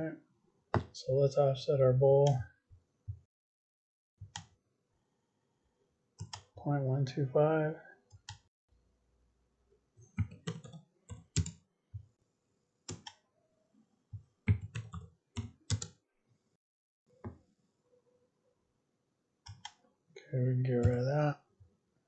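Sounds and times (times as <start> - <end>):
computer mouse clicks: 6.2 - 6.5, 19.5 - 19.8.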